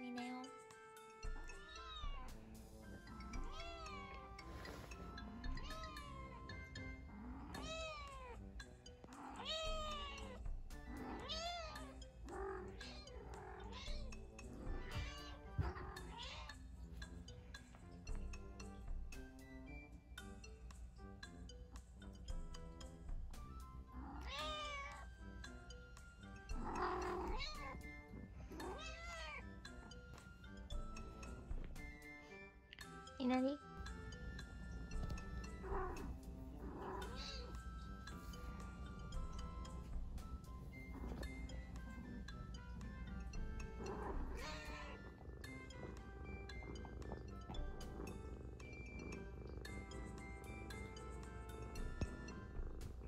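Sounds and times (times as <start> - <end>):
background music: 0.0 - 53.0
kitten meowing: 9.2 - 10.4, 43.8 - 45.0.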